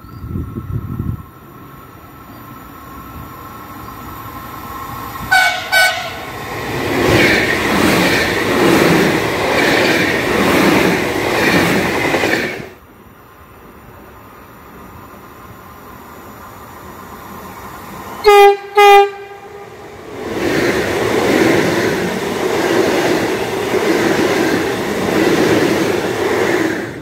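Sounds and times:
train horn toots: 5.3 - 6.3, 18.2 - 19.8.

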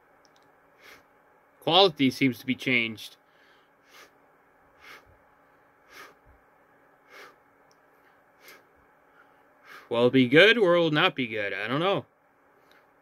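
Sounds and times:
nose breathing puffs: 3.4 - 4.2, 4.8 - 5.1, 5.8 - 6.3, 7.0 - 7.4, 8.0 - 9.9.

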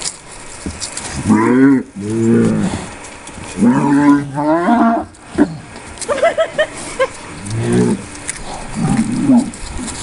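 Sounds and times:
cows mooing: 1.2 - 2.9, 3.5 - 5.7, 7.4 - 10.0.

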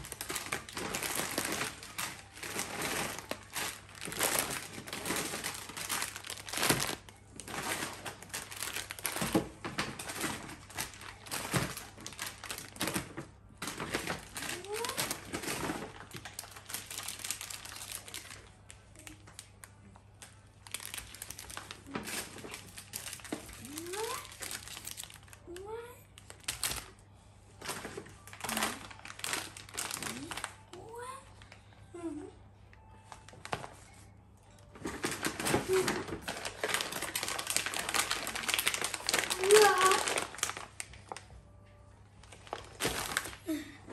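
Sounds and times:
paper bag rustling: 0.0 - 18.6, 20.6 - 25.4, 27.6 - 30.6, 34.7 - 41.3, 42.2 - 43.6
plastic packaging crinkling: 0.0 - 25.6, 26.2 - 27.0, 27.6 - 30.7, 33.1 - 43.7.

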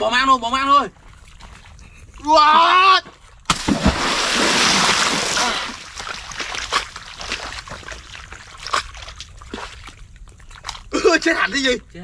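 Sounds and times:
water drips and splashes: 3.1 - 11.1
muddy water crashing spray: 3.5 - 7.9.

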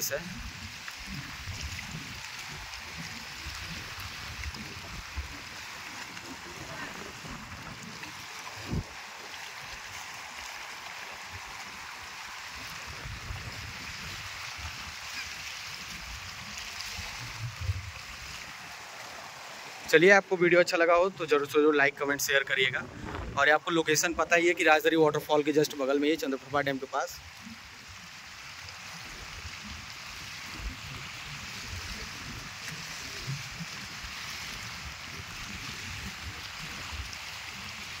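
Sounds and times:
waves lapping on rocky shore: 0.0 - 38.0
wind buffeting microphone: 0.3 - 9.2, 12.7 - 15.1, 22.3 - 24.3.

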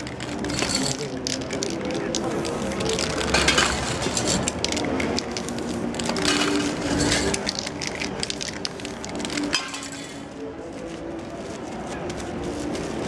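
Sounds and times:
paper crackling: 0.0 - 9.6, 10.6 - 13.0
spray can hissing: 0.3 - 9.6.

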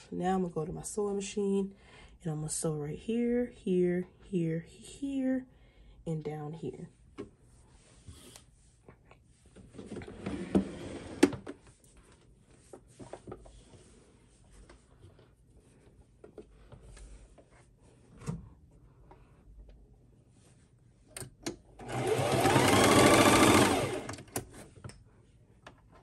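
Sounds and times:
sewing machine knocks and clicks: 21.4 - 24.6.

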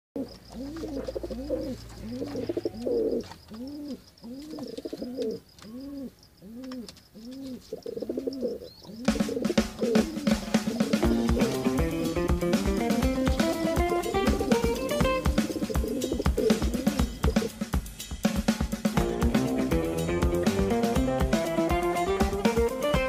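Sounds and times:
pigeons cooing: 0.2 - 17.8
music with guitar and drums: 9.1 - 23.0.

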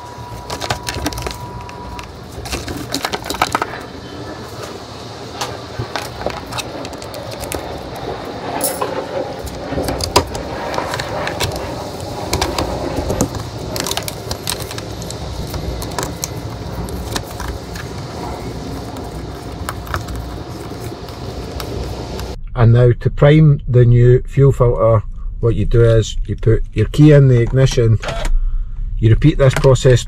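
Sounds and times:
handling rustle: 0.0 - 22.4.

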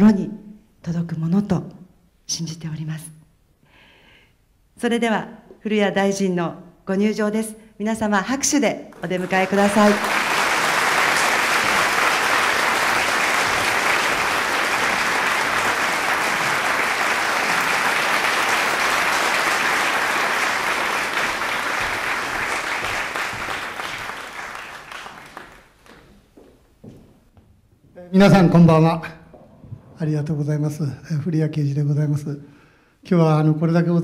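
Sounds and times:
large audience applauding: 9.0 - 26.2.

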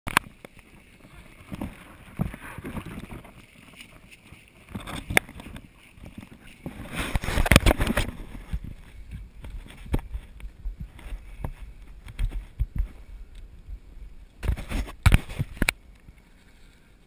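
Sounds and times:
scraping and rustling: 0.1 - 13.1, 14.4 - 17.0
camera knocks and creaks: 1.4 - 4.0, 4.6 - 13.5, 14.4 - 16.2.

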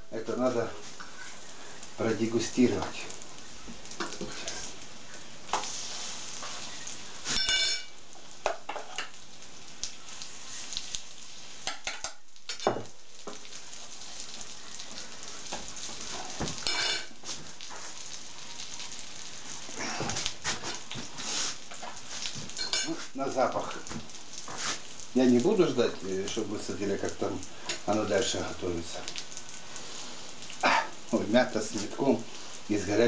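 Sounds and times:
fritters sizzling in a frying pan: 0.0 - 33.0
fork clinking on plate: 7.3 - 7.9.

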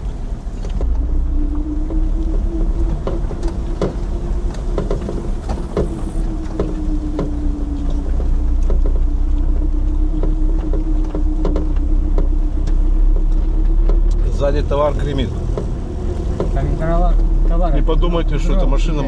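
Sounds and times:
body and cargo rattling: 0.0 - 19.0
car engine drone: 0.0 - 19.0.

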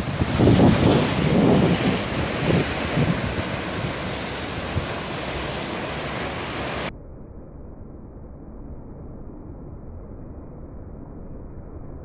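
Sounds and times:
sea waves breaking on rocks: 0.0 - 6.9
wind buffeting microphone: 0.0 - 6.9
slowed deep surf rush: 0.0 - 12.0.

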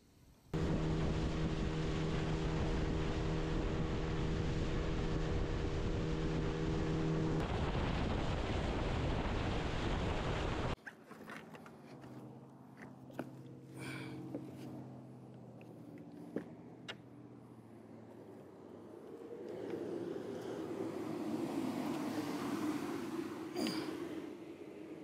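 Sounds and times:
rush of wind and water: 0.6 - 11.4, 18.5 - 25.0
boat motor humming: 0.6 - 25.0.

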